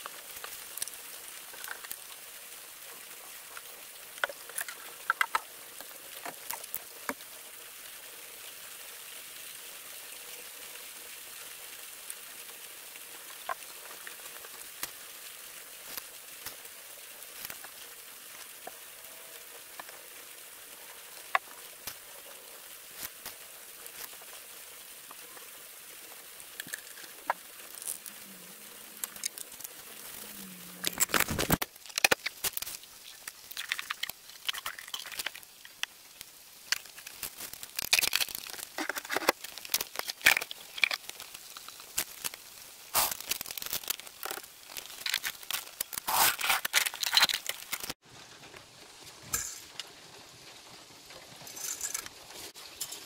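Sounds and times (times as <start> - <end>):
oil trickling through funnel: 24.1 - 48.0
plastic container clicking and scraping: 36.8 - 42.2, 43.0 - 48.0.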